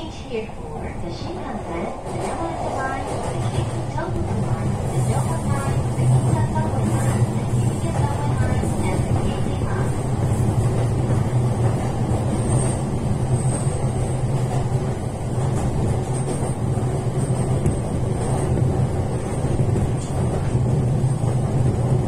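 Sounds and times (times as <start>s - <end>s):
train wheels rumbling on rails: 0.0s - 22.0s.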